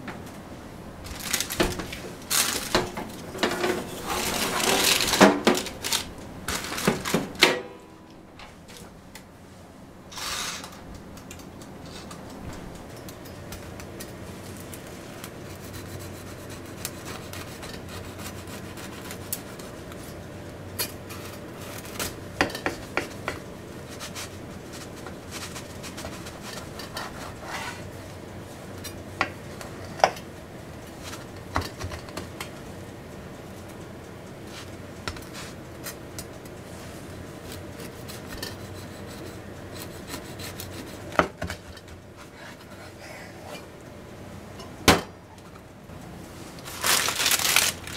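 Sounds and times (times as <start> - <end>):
crust cracking: 1.1 - 3.3, 4.2 - 7.4, 46.6 - 47.9
knife sawing through bread crust: 15.5 - 19.8, 25.3 - 27.9, 37.9 - 41.1.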